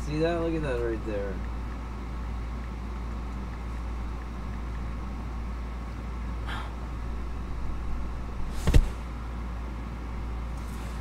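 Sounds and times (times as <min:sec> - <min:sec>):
low hum: 0:00.0 - 0:11.0
faint rustle: 0:10.5 - 0:11.0.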